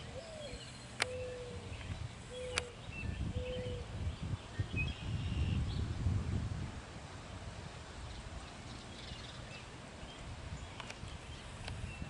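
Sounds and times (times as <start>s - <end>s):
dove cooing: 0.0s - 3.9s
wind rumbling on microphone: 0.0s - 12.0s
sharp clicks: 1.0s - 1.2s, 2.5s - 2.7s, 10.8s - 11.0s.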